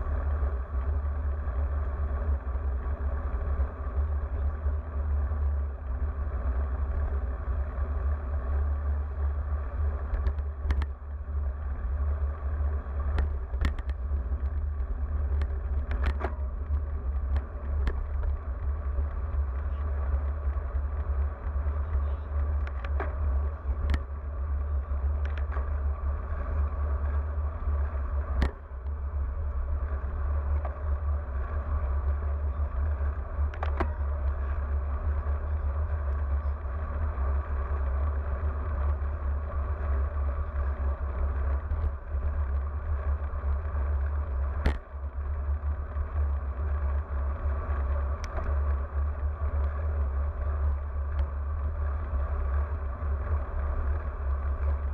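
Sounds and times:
wind rumble on microphone: 0.0 - 54.9.

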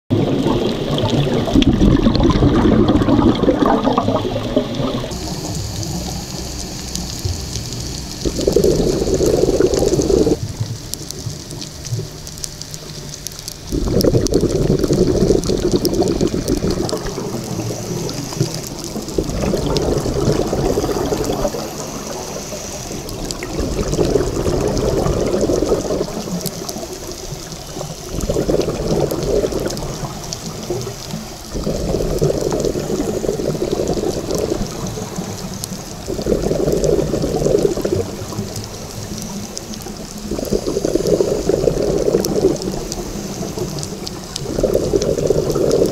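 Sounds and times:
exhaled bubbles gurgling underwater: 0.1 - 45.9
faint crackle of clicks: 0.4 - 45.9.

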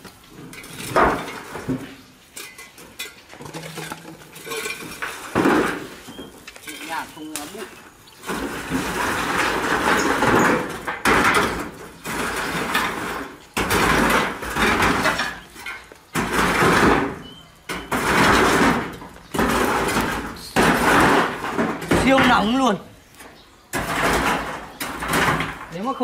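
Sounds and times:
metal spit scraping metal drum: 0.4 - 22.6.

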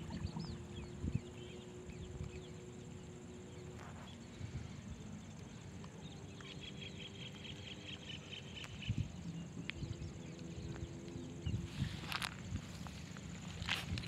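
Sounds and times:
steady low rumble: 8.4 - 14.0.

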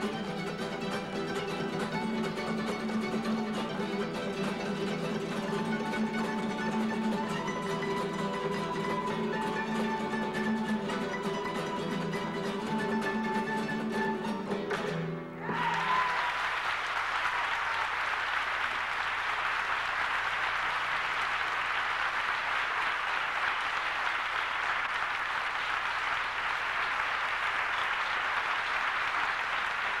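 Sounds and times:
audience applauding: 0.0 - 13.8, 14.7 - 30.0
flamenco guitar chord: 0.0 - 15.5.

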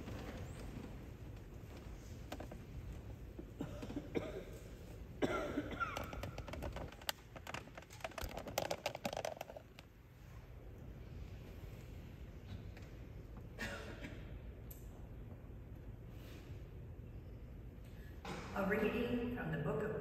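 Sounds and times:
small clicks and shuffling: 0.0 - 5.1, 5.8 - 10.0
person coughing: 3.6 - 6.2, 13.6 - 14.4.

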